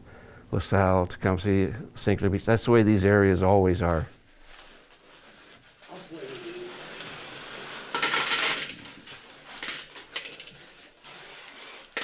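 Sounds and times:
coins clinking on a table: 7.8 - 8.9, 9.5 - 10.6.

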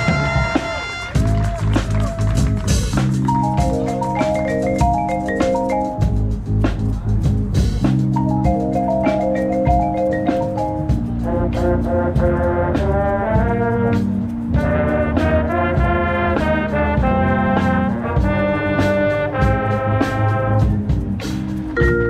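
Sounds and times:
brass horn line playing chords: 0.0 - 6.4, 10.3 - 22.0.

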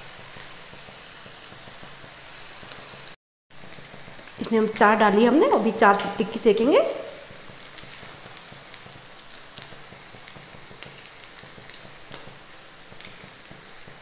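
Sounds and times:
oil sizzling in frying pan: 0.0 - 14.0
small crackles and pops: 7.0 - 14.0.

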